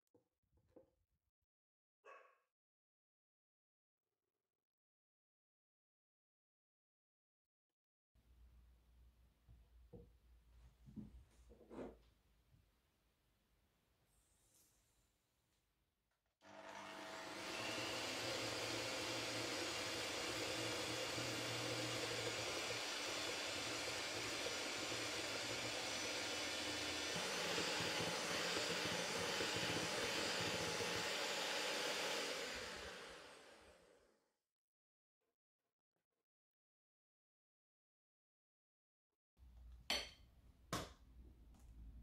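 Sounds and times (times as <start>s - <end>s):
electric hand mixer whisking: 16.5s - 34.0s.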